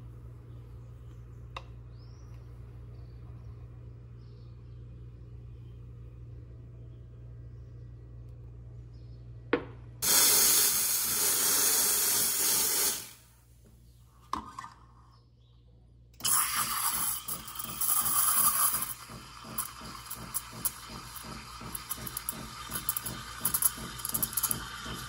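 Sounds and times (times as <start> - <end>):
click: 1.5 - 2.4
espresso machine steam wand hissing: 10.0 - 13.2, 16.2 - 25.0
steam crackling in milk: 10.0 - 13.2, 16.2 - 25.0.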